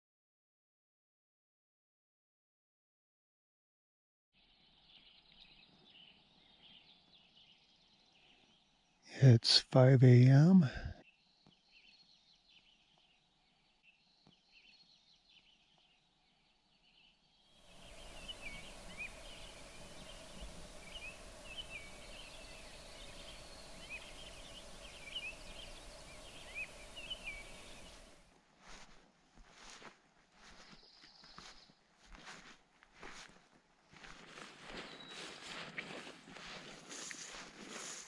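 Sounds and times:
birds chirping: 4.4s - 28.8s, 30.4s - 32.4s, 34.1s - 38.0s
steady hiss: 17.6s - 28.2s.

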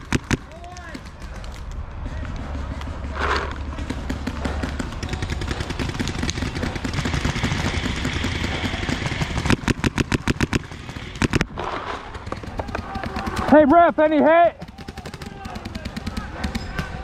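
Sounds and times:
paintball marker firing rapidly: 0.0s - 17.0s.

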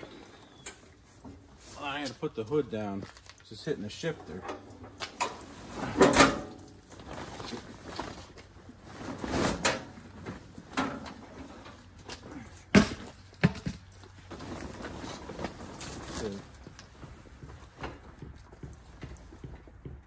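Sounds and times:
tarp rustling: 0.0s - 16.6s.

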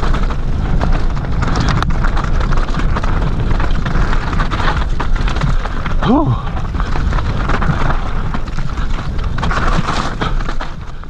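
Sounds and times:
bike clattering over bumps: 0.0s - 11.0s
tyres crunching over gravel: 0.0s - 11.0s
wind rushing over microphone: 0.0s - 11.0s.

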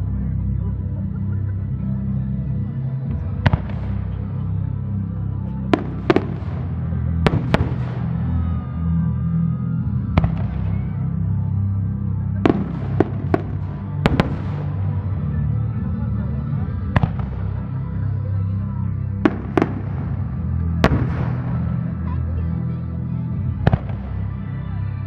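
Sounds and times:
music: 0.0s - 25.0s
fireworks bangs with echo: 3.1s - 4.4s, 5.7s - 8.6s, 10.1s - 11.2s, 12.4s - 15.2s, 16.6s - 17.8s, 19.2s - 22.2s, 23.4s - 24.4s.

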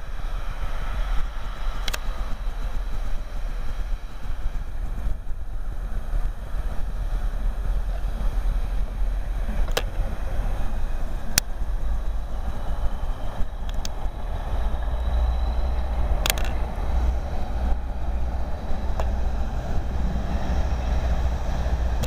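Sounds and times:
wind buffeting microphone: 0.0s - 22.0s
sharp clicks: 1.8s - 2.1s, 13.6s - 14.1s, 16.2s - 16.7s.

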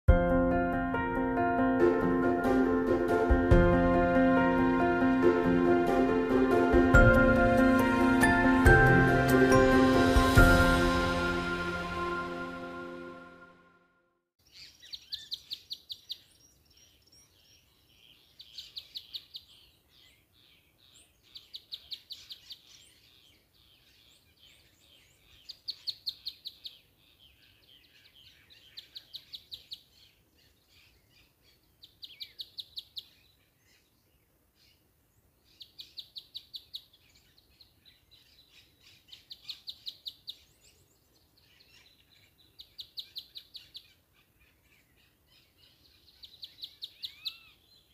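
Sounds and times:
bird trilling song: 14.4s - 34.8s, 35.4s - 47.9s.

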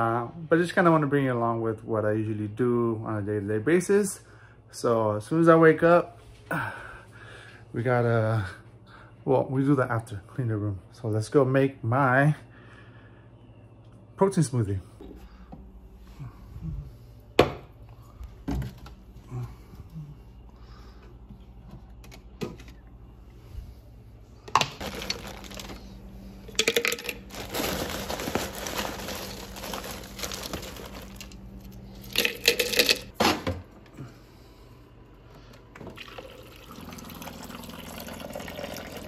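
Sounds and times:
water running into blender cup: 36.0s - 39.0s.

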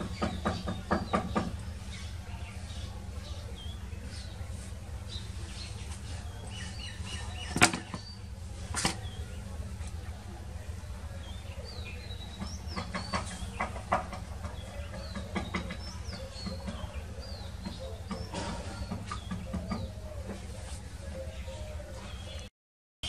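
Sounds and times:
sharp knocks: 0.0s - 1.6s
small birds chirping: 0.0s - 22.5s.

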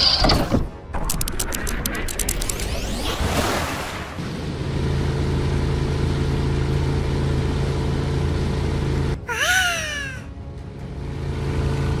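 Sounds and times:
engine hum idling: 4.4s - 9.3s, 10.3s - 12.0s.

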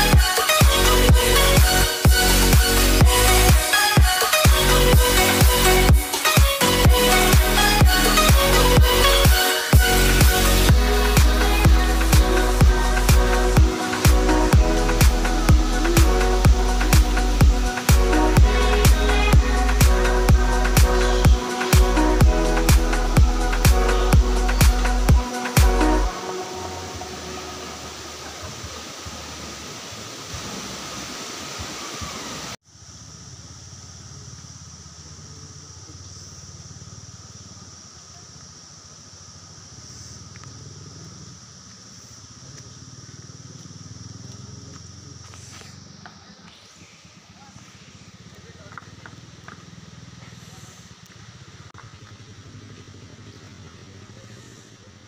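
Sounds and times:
thin high tone: 0.0s - 29.5s
outdoor hiss: 0.0s - 55.0s
low engine-like rumble: 9.9s - 30.2s, 32.7s - 55.0s
rushing churning water: 25.0s - 32.6s.

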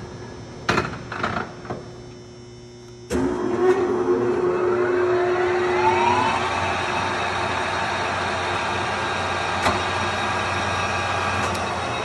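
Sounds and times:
lathe spindle whine rising: 3.1s - 12.0s.

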